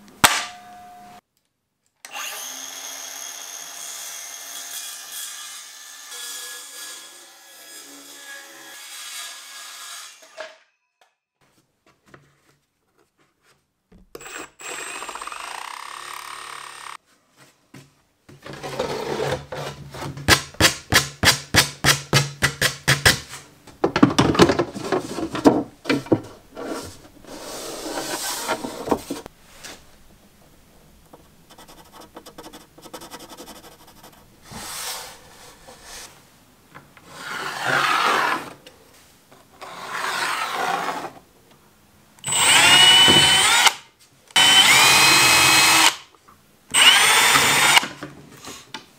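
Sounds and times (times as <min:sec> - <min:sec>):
sanding plywood edges by hand: 0:31.5 - 0:36.1.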